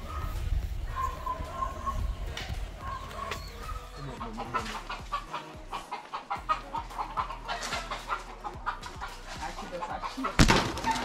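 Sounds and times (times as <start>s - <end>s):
chicken clucking: 0.0s - 11.0s.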